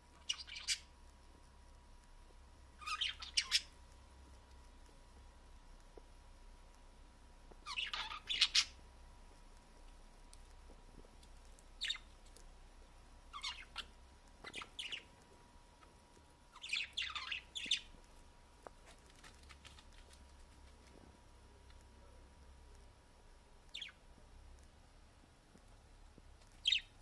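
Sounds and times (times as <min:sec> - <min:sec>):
budgerigars chirping: 0:00.2 - 0:00.9, 0:02.8 - 0:03.8, 0:07.6 - 0:08.8, 0:11.8 - 0:12.2, 0:13.3 - 0:15.1, 0:16.5 - 0:17.9, 0:23.7 - 0:24.0, 0:26.6 - 0:27.0.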